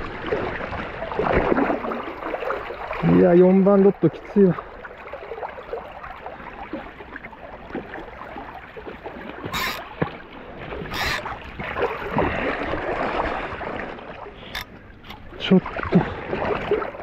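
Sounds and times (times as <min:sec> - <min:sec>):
river water rushing: 0:01.1 - 0:17.0
sharp water bursts: 0:09.4 - 0:10.1, 0:10.8 - 0:13.3.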